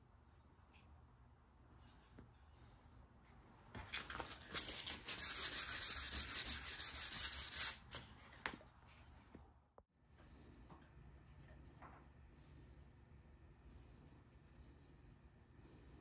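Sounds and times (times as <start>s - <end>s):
sandpaper rasping on steel blade: 4.8s - 8.0s.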